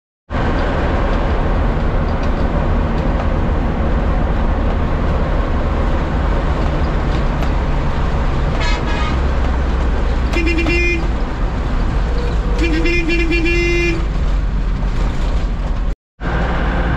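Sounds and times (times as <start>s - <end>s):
bus engine and road noise: 0.3s - 16.9s
longer vehicle horn: 8.5s - 9.4s, 10.2s - 11.2s, 12.2s - 14.1s
short high horn toot: 8.6s - 9.3s, 10.3s - 11.1s, 12.3s - 14.0s.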